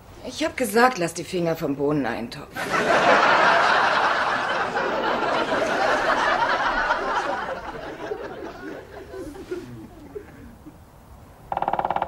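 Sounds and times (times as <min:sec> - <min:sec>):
studio audience laughing: 0:02.6 - 0:10.7
faint murmur: 0:06.6 - 0:10.8.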